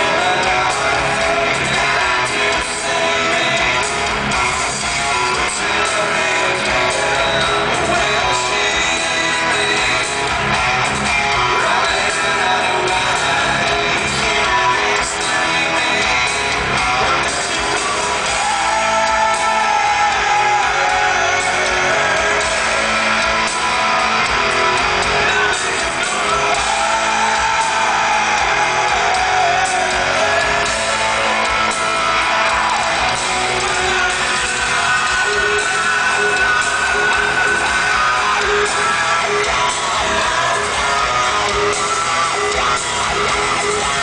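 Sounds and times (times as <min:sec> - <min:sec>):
electric guitar: 0:00.0 - 0:44.0
live rock band: 0:00.0 - 0:44.0.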